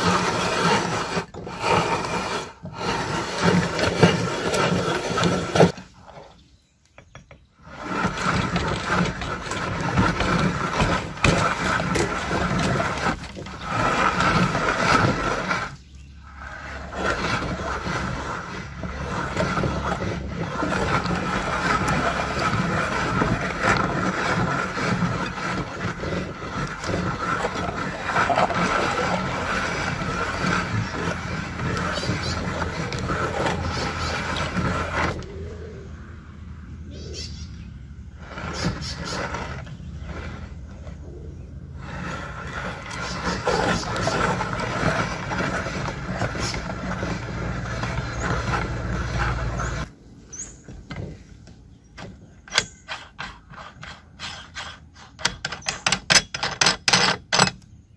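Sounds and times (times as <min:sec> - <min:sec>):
hand-cranked meat grinder churning: 0:00.0 - 0:06.3, 0:07.6 - 0:35.7, 0:38.2 - 0:49.9, 0:52.1 - 0:57.5.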